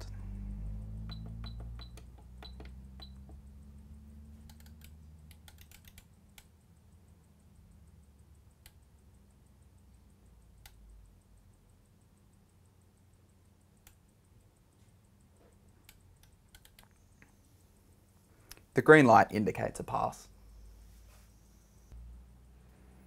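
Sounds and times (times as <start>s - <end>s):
faint low hum: 0.0s - 23.0s
keys clicking: 4.4s - 6.5s.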